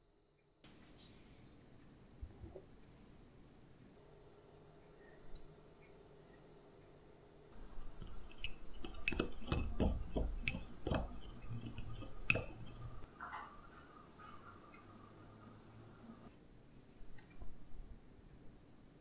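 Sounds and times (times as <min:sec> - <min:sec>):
whisk clinking against ceramic bowl: 0:07.6 - 0:13.1.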